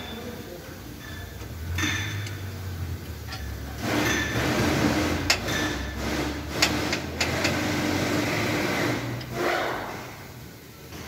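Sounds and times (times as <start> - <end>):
low mechanical hum: 0.0 - 11.0
wrench clicking on metal: 6.6 - 7.6.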